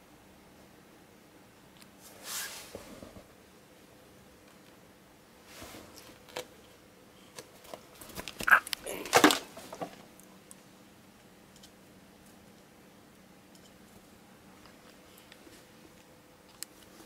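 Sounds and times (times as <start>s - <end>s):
sharp loud noises: 8.4s - 9.2s.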